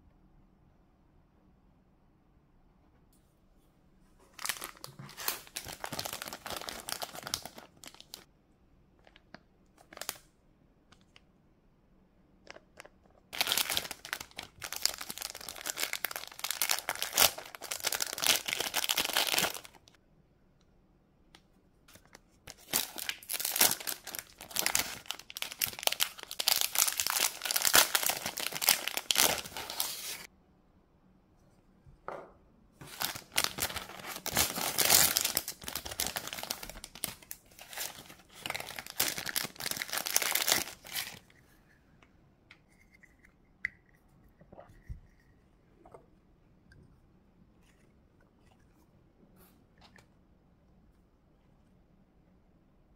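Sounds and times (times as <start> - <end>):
plastic bags crinkling: 4.4 - 8.3, 12.5 - 19.9, 22.5 - 30.3, 32.8 - 41.2.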